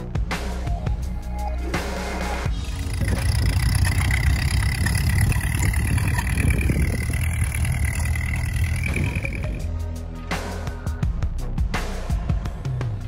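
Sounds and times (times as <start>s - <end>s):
tractor engine running: 2.4s - 9.7s
thin high whine: 2.5s - 9.7s.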